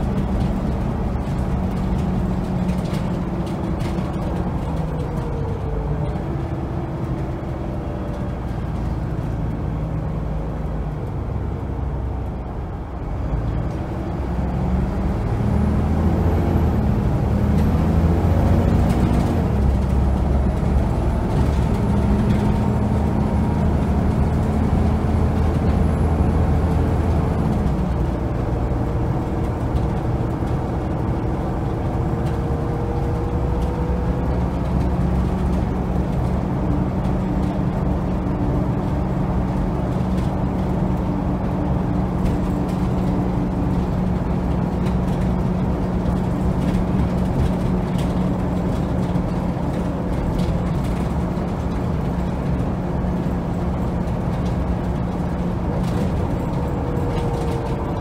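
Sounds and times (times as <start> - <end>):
bus diesel engine: 0.0 - 58.0
road noise: 0.0 - 58.0.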